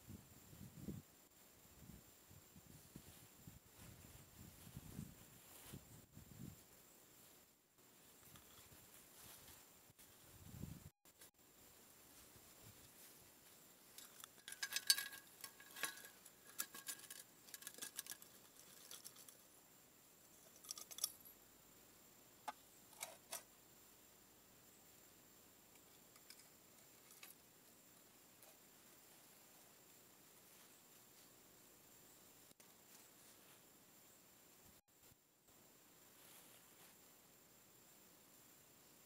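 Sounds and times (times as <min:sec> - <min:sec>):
small metallic clicks: 0:13.9 - 0:19.5, 0:20.4 - 0:21.4, 0:22.4 - 0:23.5, 0:25.7 - 0:27.5
metal chains clinking: 0:14.0 - 0:19.3.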